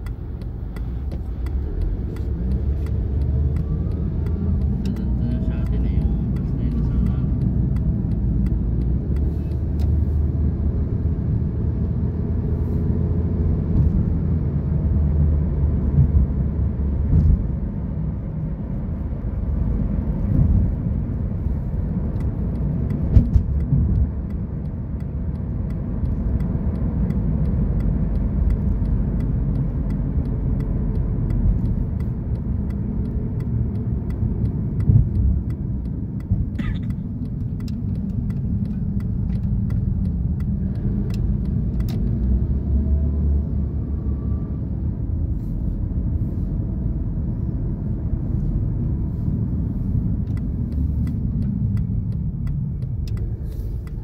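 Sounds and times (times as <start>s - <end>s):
engine and road rumble: 0.0s - 54.0s
knocks and clicks: 22.0s - 42.3s.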